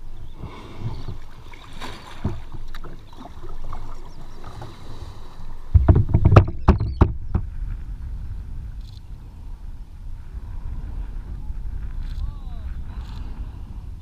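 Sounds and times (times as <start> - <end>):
water lapping against kayak hull: 0.2 - 8.8
slaps and knocks on hull: 1.8 - 3.0, 5.7 - 7.5.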